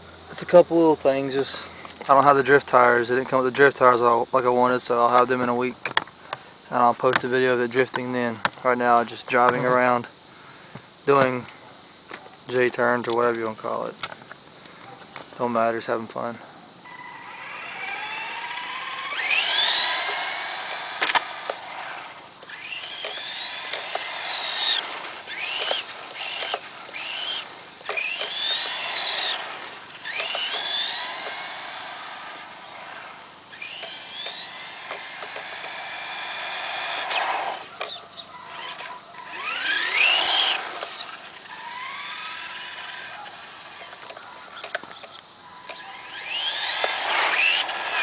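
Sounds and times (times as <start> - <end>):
toy car electric motor whining: 16.8 - 48.0.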